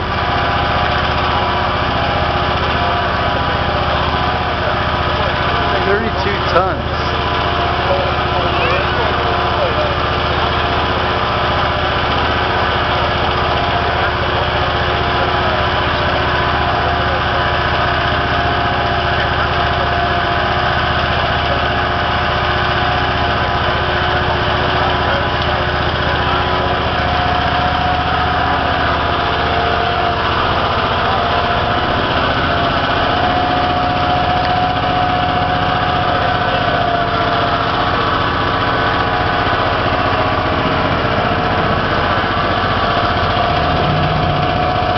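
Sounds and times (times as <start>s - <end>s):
engine running steadily: 0.0s - 44.9s
higher steady tone: 27.8s - 44.9s.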